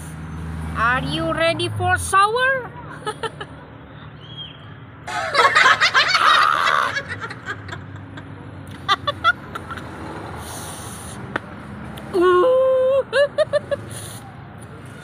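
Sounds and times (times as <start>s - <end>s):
woman laughing: 5.1s - 9.8s, 12.2s - 13.9s.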